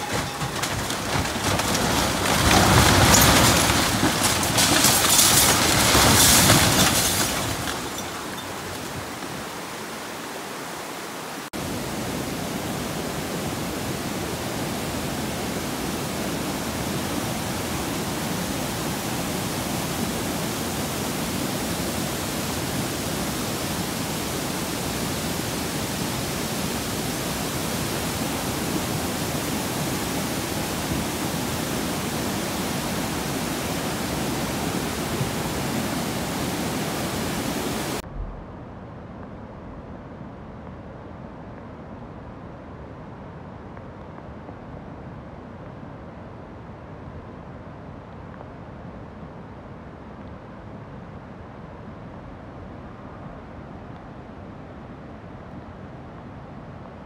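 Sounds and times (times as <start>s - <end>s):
floodwater rushing in creek: 0.0s - 38.0s.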